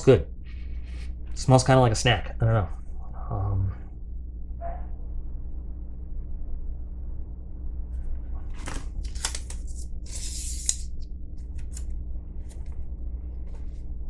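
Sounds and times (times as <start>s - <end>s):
steady low hum: 0.0s - 14.0s
paper rustling and crinkling: 8.5s - 10.8s.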